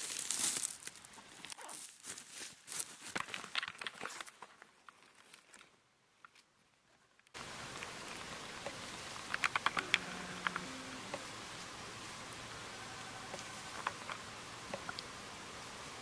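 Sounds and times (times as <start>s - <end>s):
crackling rustles: 0.0s - 15.2s
steady hiss: 7.4s - 16.0s
small clicks: 8.6s - 11.3s.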